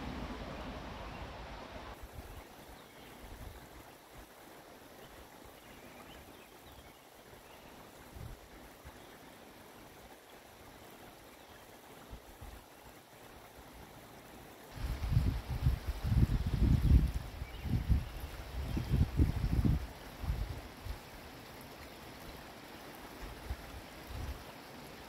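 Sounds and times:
small stream flowing: 0:00.0 - 0:25.0.

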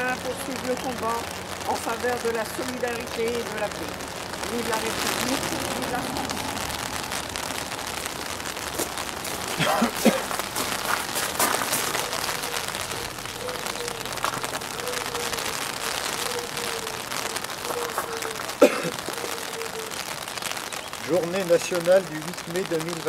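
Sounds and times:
outdoor hiss: 0:00.0 - 0:23.0
paper rustling: 0:08.7 - 0:20.0.

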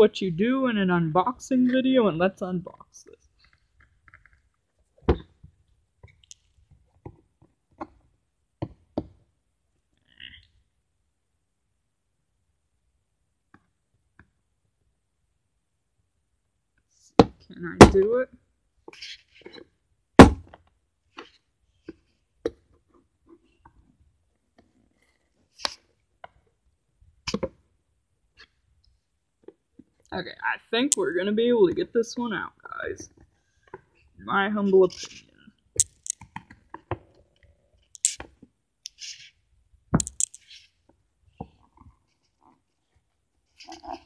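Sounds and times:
loud thump: 0:20.2 - 0:20.5.

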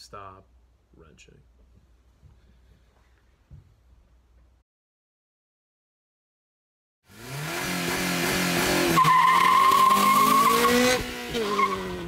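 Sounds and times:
car engine revving: 0:07.1 - 0:12.0
tires squealing: 0:08.7 - 0:12.0.

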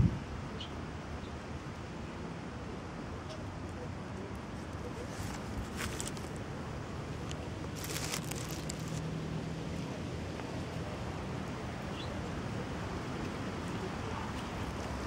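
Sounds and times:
wind on the microphone: 0:00.0 - 0:00.5.

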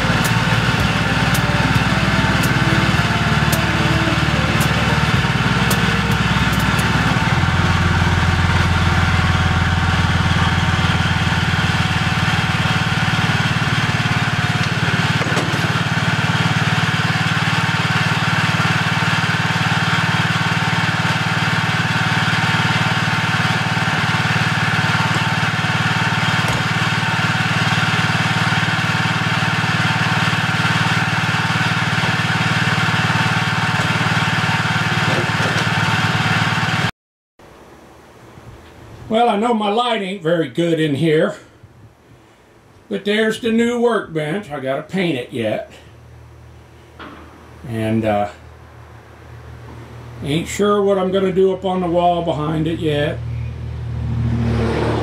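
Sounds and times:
small gasoline engine idling: 0:00.0 - 0:36.9.

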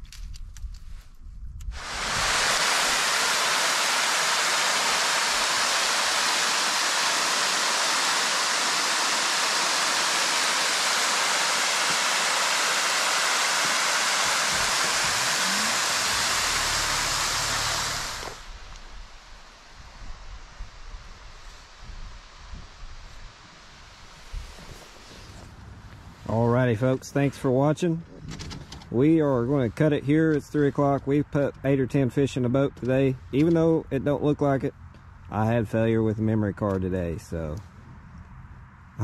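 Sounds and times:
waterfall splashing: 0:01.8 - 0:19.7.

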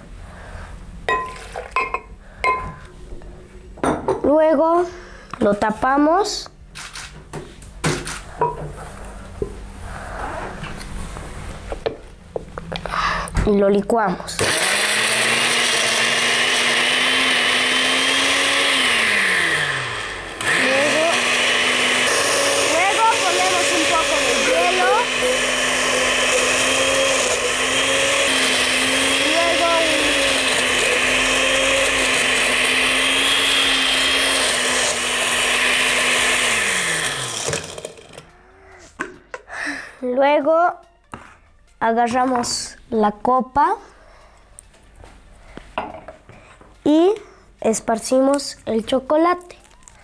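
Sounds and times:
blender motor running: 0:14.4 - 0:38.3.

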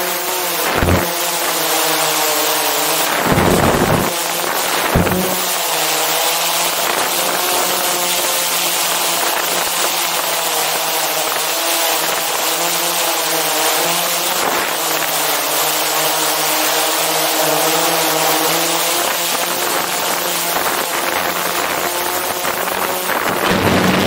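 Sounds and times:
drone propellers whining: 0:00.3 - 0:06.2, 0:21.7 - 0:24.0.

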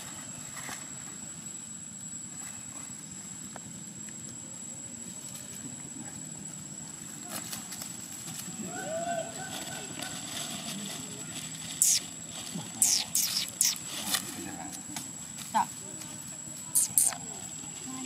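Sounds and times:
low outdoor background rumble: 0:00.0 - 0:12.8
faint crackles: 0:09.5 - 0:16.1.

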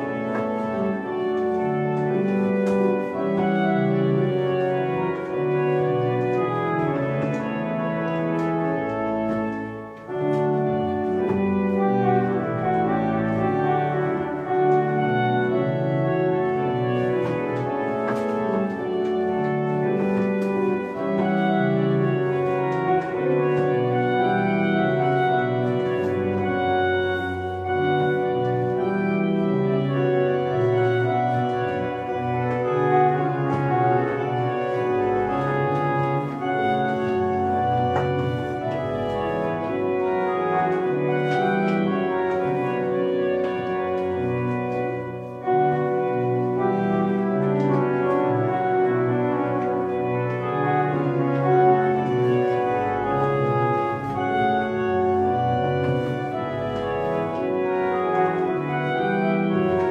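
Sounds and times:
organ playing a lively dance tune: 0:00.0 - 0:59.9.

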